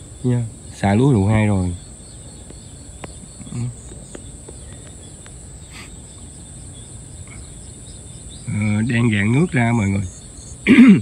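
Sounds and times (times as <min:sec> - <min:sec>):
insects chirring: 0:00.0 - 0:11.0
low ambient hum: 0:00.0 - 0:11.0
faint ticks: 0:02.2 - 0:08.6.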